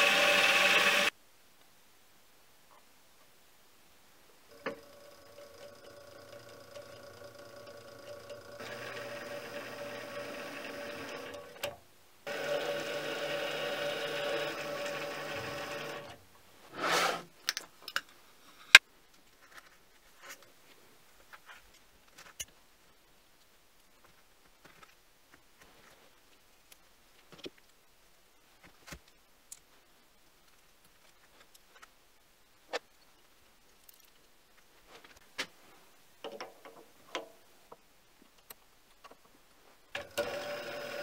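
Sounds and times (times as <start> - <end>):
mini lathe running: 0.0 - 1.1, 4.5 - 11.7, 12.3 - 16.2, 40.0 - 41.0.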